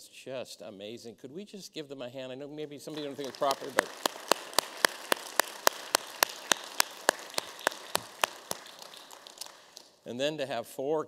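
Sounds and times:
close sharp hand claps: 0:02.9 - 0:10.0
congregation applauding: 0:02.9 - 0:10.0.

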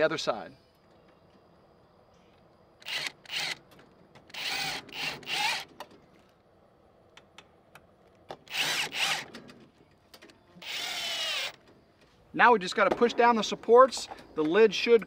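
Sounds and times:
cordless drill driving screws: 0:02.8 - 0:05.8, 0:08.5 - 0:09.3, 0:10.6 - 0:11.6.

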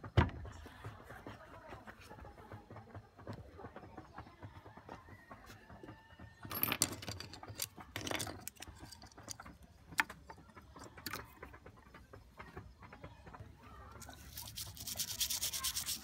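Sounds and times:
small parts clattering into a basin: 0:06.5 - 0:11.2.

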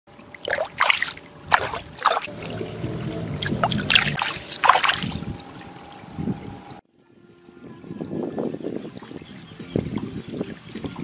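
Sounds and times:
low hum: 0:00.1 - 0:06.8
water trickling: 0:00.1 - 0:06.8
fish splashing in water: 0:00.2 - 0:06.1.

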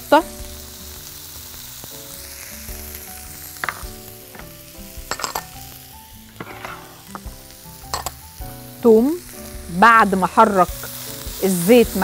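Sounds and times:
onion frying in oil: 0:00.0 - 0:12.0
small glass bowls clinking: 0:05.1 - 0:05.5.

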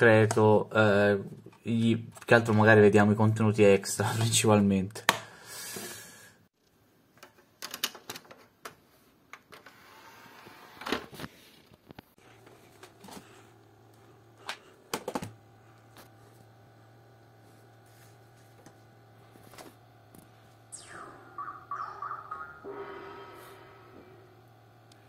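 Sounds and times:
plastic clicks and rattles: 0:07.1 - 0:09.6
steady low hum: 0:12.2 - 0:25.0.

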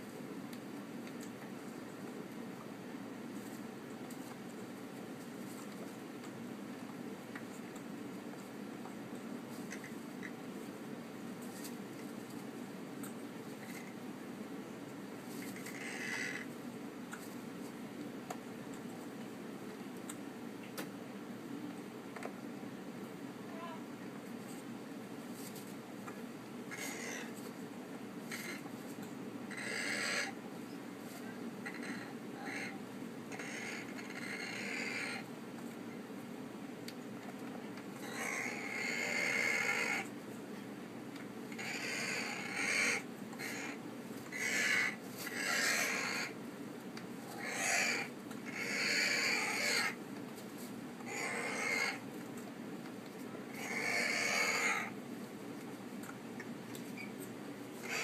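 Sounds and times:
parrot hoarse raspy calls: 0:15.4 - 0:16.5, 0:26.7 - 0:27.4, 0:28.3 - 0:28.7, 0:29.5 - 0:30.4, 0:31.3 - 0:35.3, 0:38.0 - 0:40.1, 0:41.5 - 0:46.4, 0:47.2 - 0:50.0, 0:51.0 - 0:52.1, 0:53.5 - 0:55.0, 0:57.8 - 0:58.0.

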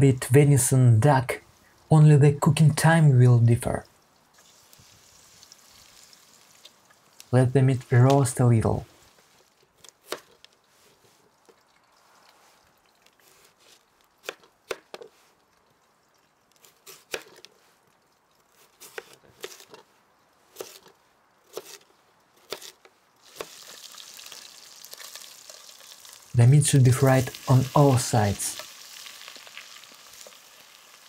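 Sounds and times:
chicken sizzling in a pot: 0:04.3 - 0:07.3, 0:23.2 - 0:31.0.

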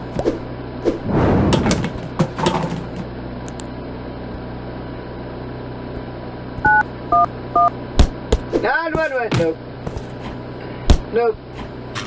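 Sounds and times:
steady low hum: 0:00.0 - 0:12.0
phone keypad touch tones: 0:06.6 - 0:07.7.

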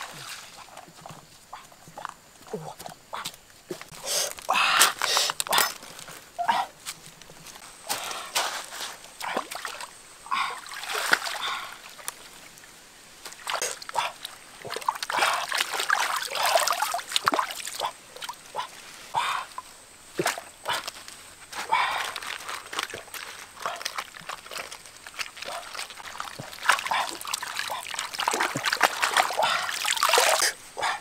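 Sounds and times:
lettuce rinsed in water splashing: 0:22.1 - 0:30.6.

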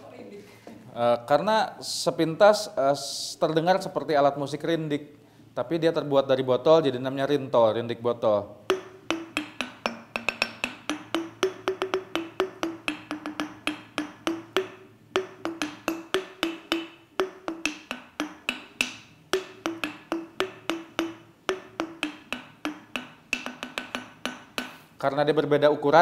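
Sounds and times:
glass bottles struck with a beater: 0:08.6 - 0:25.0.

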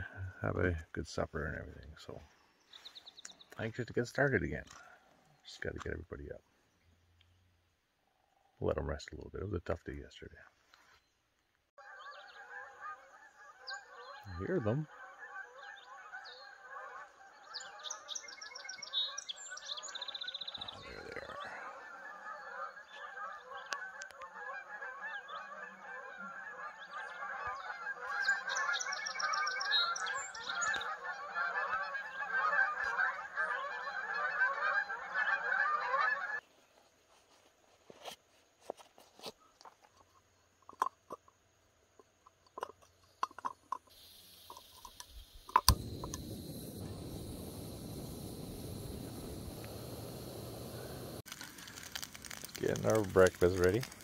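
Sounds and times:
geese honking: 0:11.8 - 0:18.3, 0:20.6 - 0:36.4, 0:45.6 - 0:54.0
camp stove clicks and knocks: 0:44.9 - 0:46.2.

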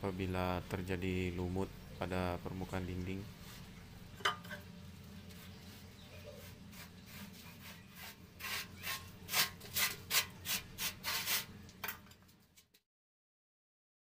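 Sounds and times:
paintbrush strokes on concrete: 0:03.3 - 0:03.8, 0:05.1 - 0:11.6.

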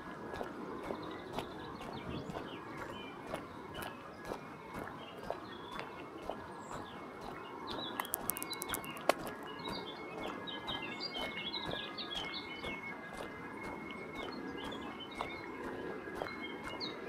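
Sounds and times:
songbirds chirping: 0:00.0 - 0:17.0
sharp click: 0:08.0 - 0:09.2.

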